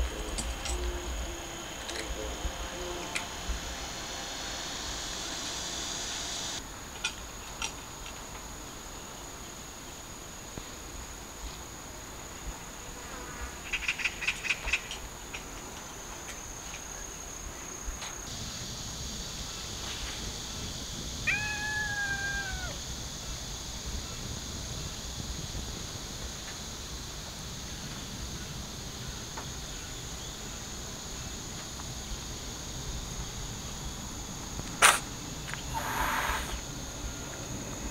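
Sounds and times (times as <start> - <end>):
insect chirring: 0.0 - 8.1, 13.6 - 37.9
kitten meowing: 21.3 - 22.8.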